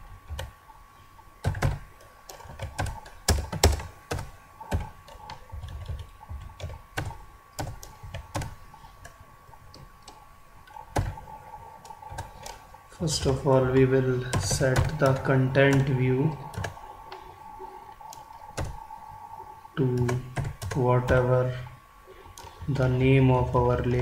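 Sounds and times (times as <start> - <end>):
faint steady tone: 0.0 - 24.0
typing on computer keyboard: 1.4 - 9.2, 20.0 - 21.2.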